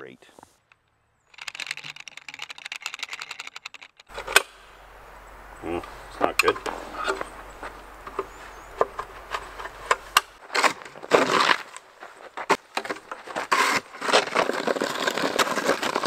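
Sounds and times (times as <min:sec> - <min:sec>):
ratchet strap clicking: 0:01.3 - 0:04.5
scraping snow off ground: 0:04.1 - 0:16.0.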